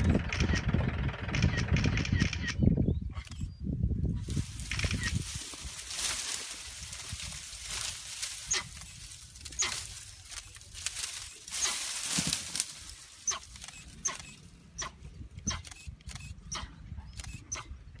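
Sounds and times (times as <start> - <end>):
leafy branches rustling: 4.2 - 14.8.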